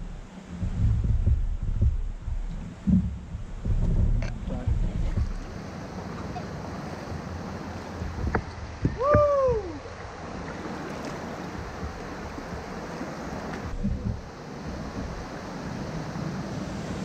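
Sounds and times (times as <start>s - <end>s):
low thumps: 0.0s - 5.7s, 7.1s - 10.4s, 11.5s - 15.6s
moving water hiss: 0.0s - 17.0s
paddle knocks: 0.6s - 5.6s, 7.0s - 9.7s, 10.4s - 15.5s.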